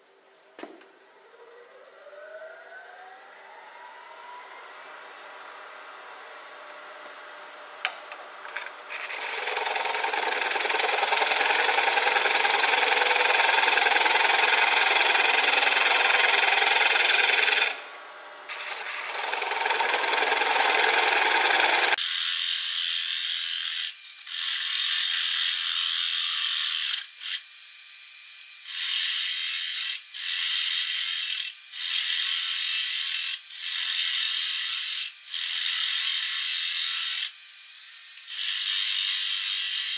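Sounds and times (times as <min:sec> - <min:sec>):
gouge scraping wood on lathe: 0:08.9 - 0:17.8, 0:18.5 - 0:22.0.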